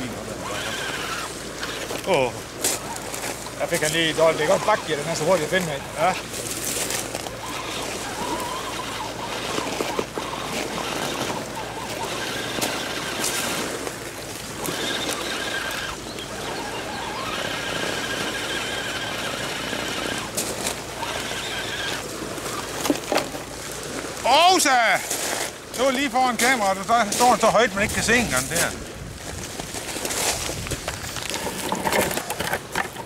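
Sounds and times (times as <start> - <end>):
electric motor whining: 0.0 - 2.1, 2.8 - 23.1
tyres scraping on dirt: 0.0 - 33.0.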